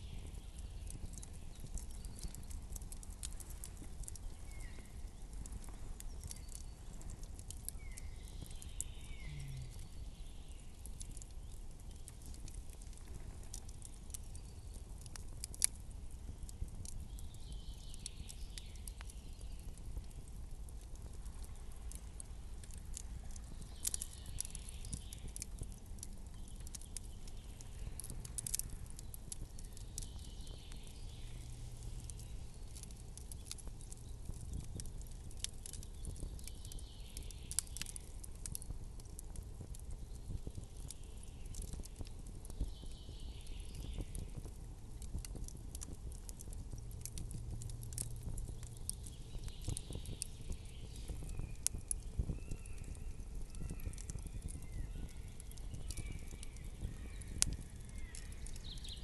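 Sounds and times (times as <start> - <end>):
campfire crackling and popping: 0.0 - 59.0
low steady rumble: 27.1 - 35.2, 44.1 - 53.1.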